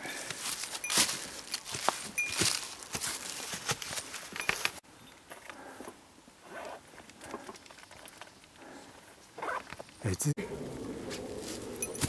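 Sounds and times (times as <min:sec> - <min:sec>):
rustling in dry leaves: 0:00.0 - 0:04.8, 0:10.4 - 0:12.0.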